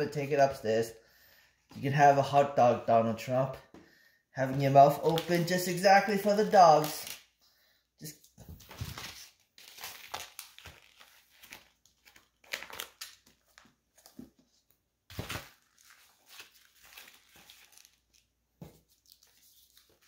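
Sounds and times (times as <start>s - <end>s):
plastic packages crinkling: 8.6s - 13.7s, 15.1s - 18.4s.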